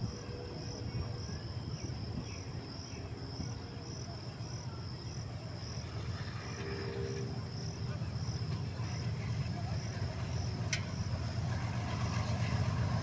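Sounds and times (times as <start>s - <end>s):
low rumble: 5.6s - 13.0s.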